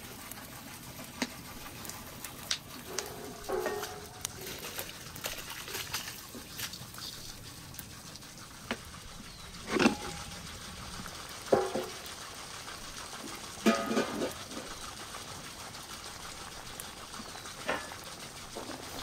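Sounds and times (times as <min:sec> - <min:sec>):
metal cookware clanking: 0:02.9 - 0:05.5, 0:09.6 - 0:10.2, 0:11.5 - 0:12.0, 0:13.6 - 0:14.4.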